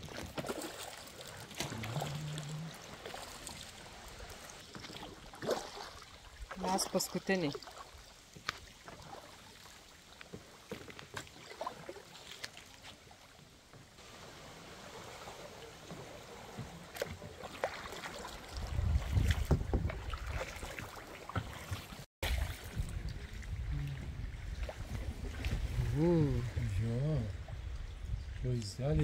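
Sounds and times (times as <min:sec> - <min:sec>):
paddle dips: 0:00.0 - 0:28.6
light water noise: 0:00.0 - 0:29.0
wind rumble on microphone: 0:18.5 - 0:20.6, 0:22.3 - 0:29.0.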